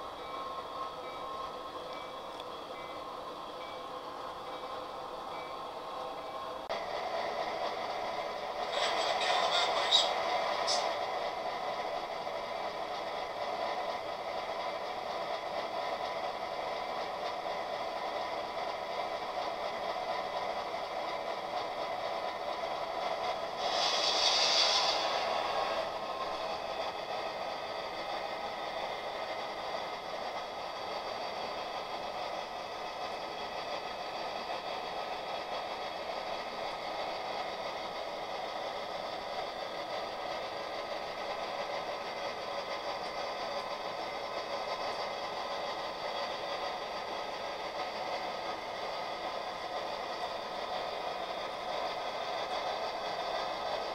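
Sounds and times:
hiss: 0:23.6 - 0:25.7.

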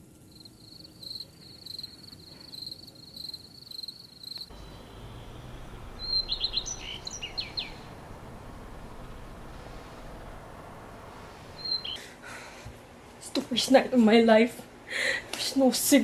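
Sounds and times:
faint background hiss: 0:00.0 - 0:16.0
night insects trilling: 0:00.2 - 0:12.0
bird calling sharp notes: 0:04.5 - 0:12.0.

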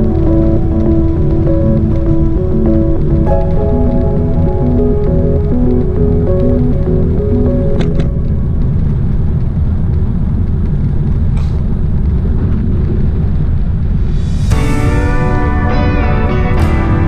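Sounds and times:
background music: 0:00.0 - 0:09.1, 0:14.0 - 0:17.0
wind buffeting microphone: 0:00.0 - 0:15.9.

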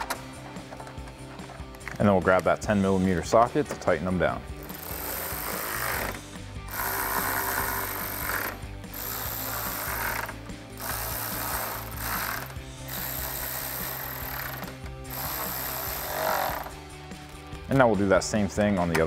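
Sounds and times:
electric ratchet running bolts: 0:04.6 - 0:16.8.

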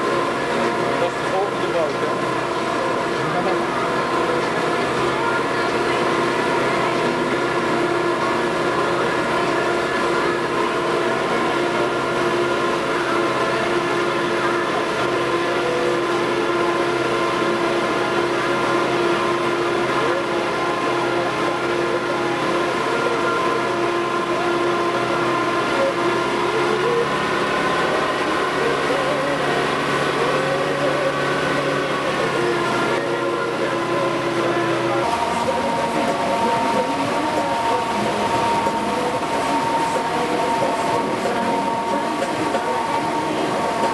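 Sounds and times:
motorboat engine droning: 0:00.0 - 0:43.9
faint wavering tone: 0:30.2 - 0:43.9.

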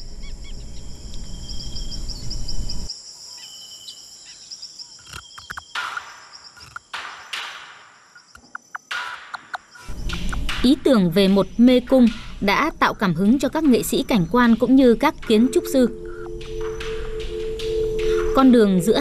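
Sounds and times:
bird chirping: 0:00.0 - 0:19.0
high insect drone: 0:00.0 - 0:19.0
low rumble: 0:09.9 - 0:19.0.

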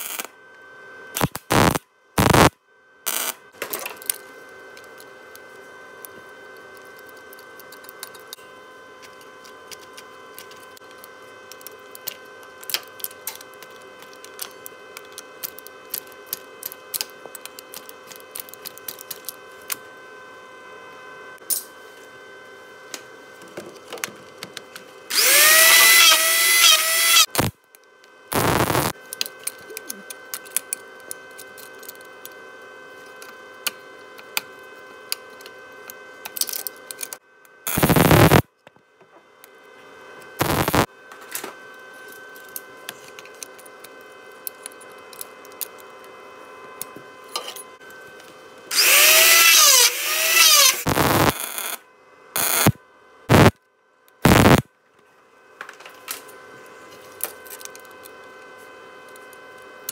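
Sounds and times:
steady humming: 0:01.1 - 0:02.5, 0:28.3 - 0:30.5, 0:37.0 - 0:38.4, 0:40.4 - 0:40.9, 0:48.7 - 0:51.8, 0:52.4 - 0:53.5, 0:54.3 - 0:54.6.

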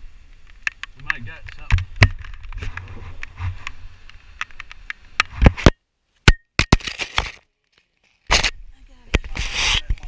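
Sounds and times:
clicks and knocks on microphone: 0:00.5 - 0:05.8, 0:08.3 - 0:10.0.

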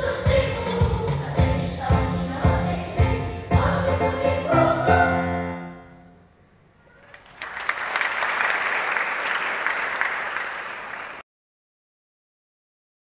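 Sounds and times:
children's choir singing: 0:00.0 - 0:06.0
congregation applauding: 0:06.9 - 0:11.2.

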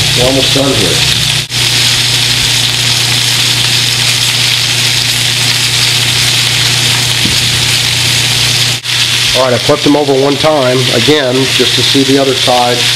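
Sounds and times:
steaks sizzling in a skillet: 0:00.0 - 0:12.9.

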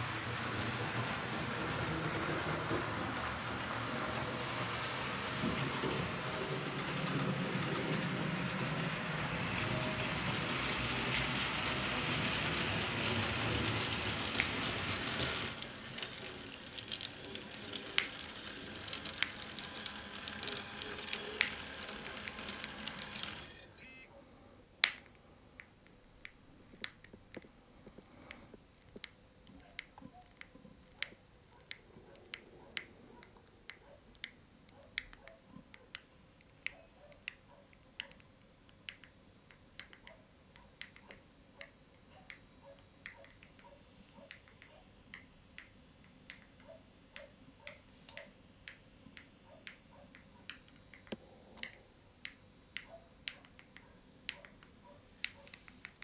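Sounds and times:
model train rushing hiss: 0:00.0 - 0:23.6
wheels clicking over rail joints: 0:00.0 - 0:23.7.

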